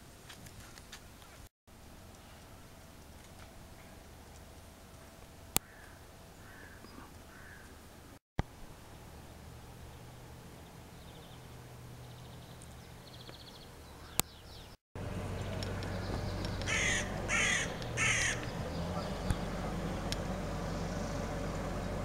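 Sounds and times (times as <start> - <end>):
crow cawing: 5.6 - 7.7, 16.7 - 18.5.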